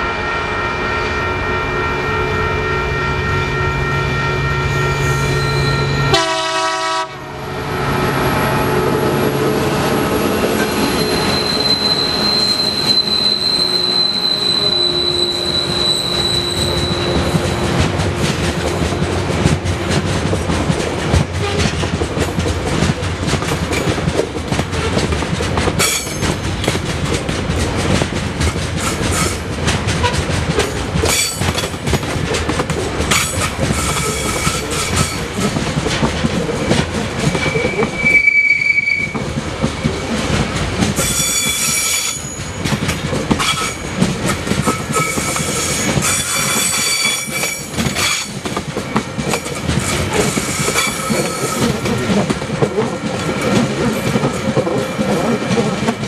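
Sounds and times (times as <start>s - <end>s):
train wheels rumbling on rails: 0.0s - 56.0s
high wheel squeals: 3.4s - 6.2s, 9.9s - 17.7s, 37.3s - 39.2s, 44.8s - 48.3s.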